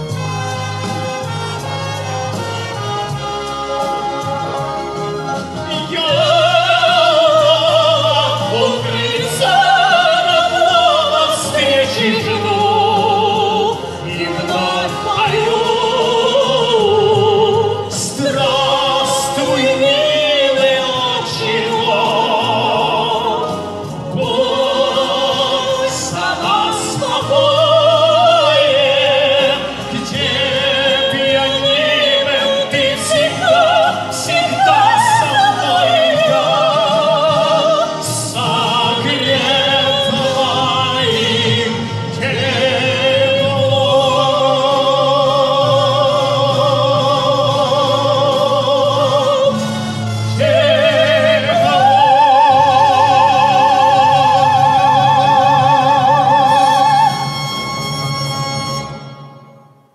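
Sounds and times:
man and woman singing a pop ballad: 0.0 - 57.4
recorded accompaniment: 0.0 - 59.9.

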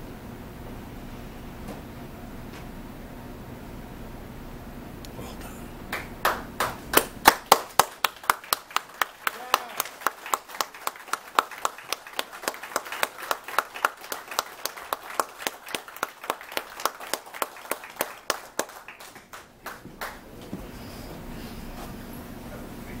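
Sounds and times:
audience clapping in rhythm: 5.9 - 20.3.

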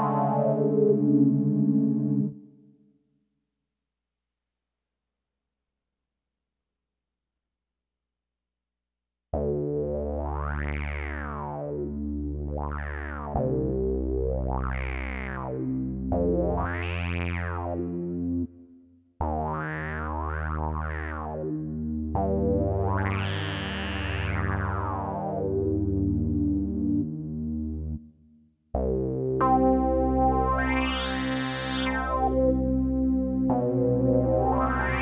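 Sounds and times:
synthesizer chords with filter sweeps: 0.0 - 2.5, 28.8 - 35.0.

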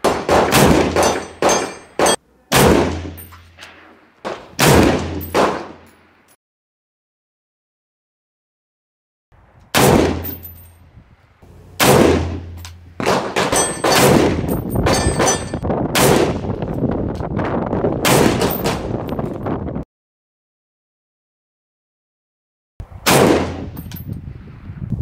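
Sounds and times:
rifle shots: 0.0 - 5.8, 9.7 - 10.5, 11.5 - 16.4, 18.0 - 18.9, 23.1 - 23.8
metallic clanging and ringing: 1.0 - 2.2, 3.1 - 3.6, 10.2 - 10.8, 12.4 - 15.6.

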